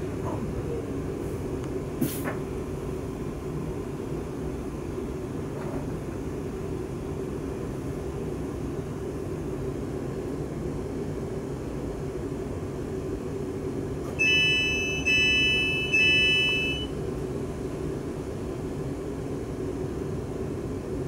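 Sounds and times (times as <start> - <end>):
train equipment humming: 13.0 - 20.5
door warning beeps: 14.2 - 16.9.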